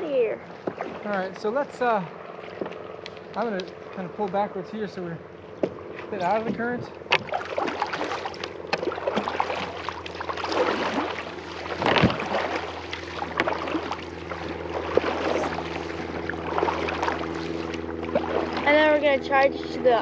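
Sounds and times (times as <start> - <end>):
paddles splashing in water: 0.4 - 4.5, 5.2 - 20.0
paddle knocks: 5.6 - 18.7
rushing water: 7.1 - 20.0.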